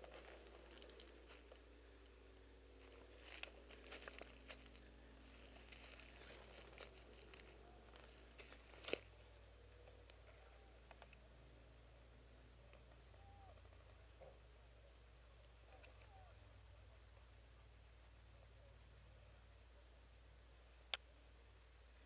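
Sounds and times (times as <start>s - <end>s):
rustling of dry brush: 0.0s - 9.5s.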